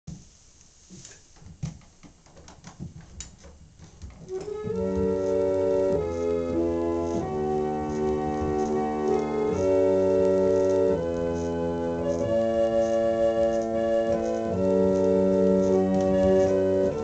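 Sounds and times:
organ clicks and knocks: 0:01.2 - 0:17.0
reed organ chords: 0:04.2 - 0:17.0.

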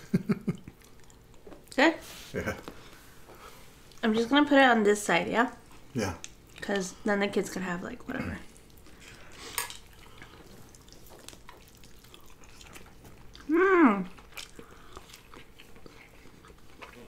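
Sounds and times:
eating fries: 0:05.7 - 0:17.0
person humming: 0:13.5 - 0:14.1.

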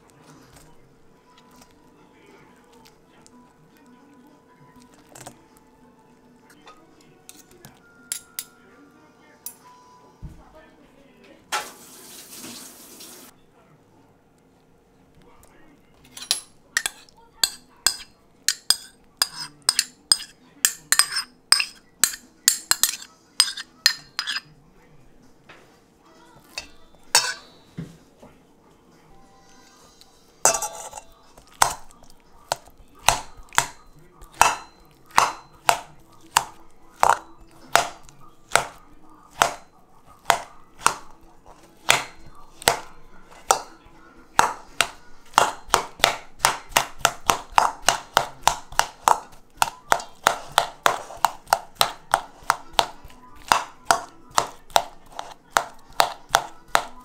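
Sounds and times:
spoon mashing potatoes: 0:00.0 - 0:09.8, 0:15.1 - 0:27.9, 0:29.1 - 0:57.0
metal spoon clinking in steel bowl: 0:06.6 - 0:08.6, 0:16.1 - 0:24.5, 0:26.5 - 0:27.7, 0:30.4 - 0:43.8, 0:44.4 - 0:57.0.

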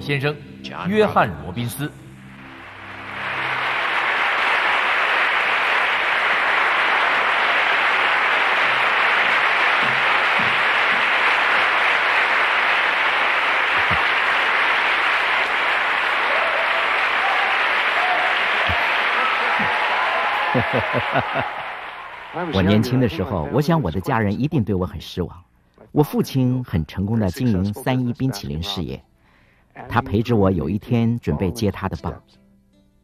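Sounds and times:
large audience applauding: 0:02.4 - 0:23.4.

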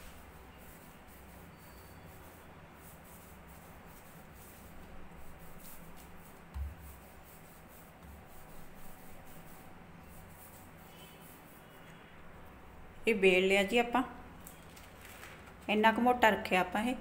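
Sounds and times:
rolling pin rolling over dough: 0:00.0 - 0:11.7
dull knock: 0:06.5 - 0:06.8.

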